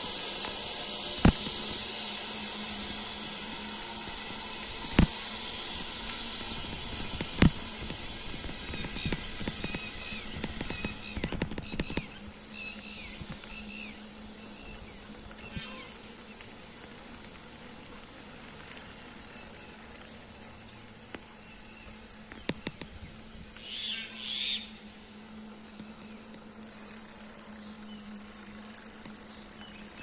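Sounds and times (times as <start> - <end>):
steady low hum: 0.0 - 30.0
scattered clicks: 6.0 - 12.2.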